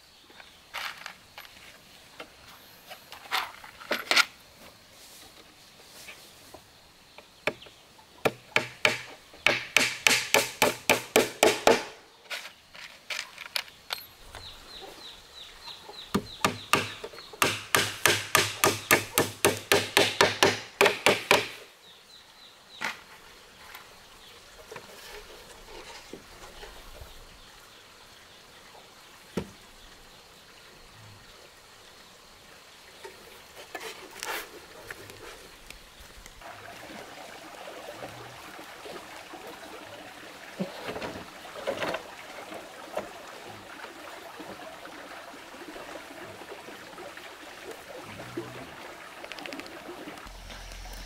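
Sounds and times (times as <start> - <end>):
tool chopping wooden post: 8.2 - 12.0, 16.1 - 21.6
single knocks on wood: 16.1 - 21.6.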